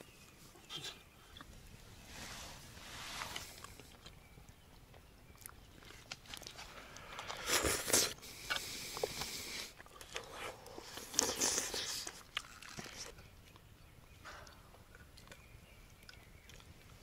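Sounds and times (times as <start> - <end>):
rustle: 0.0 - 14.7
person chewing: 5.3 - 13.7.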